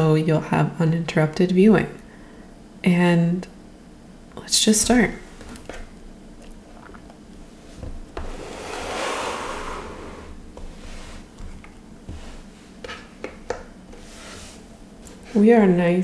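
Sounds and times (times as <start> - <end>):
rustling scrape on tabletop: 8.2 - 13.0, 13.9 - 15.4.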